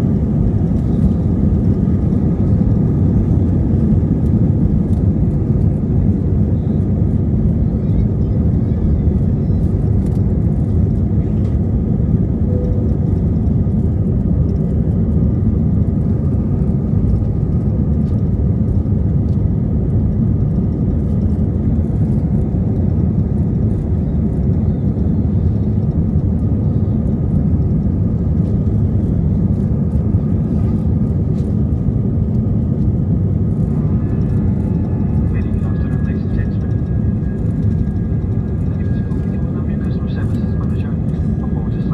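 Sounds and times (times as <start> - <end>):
jet engines rumbling: 0.0 - 41.9.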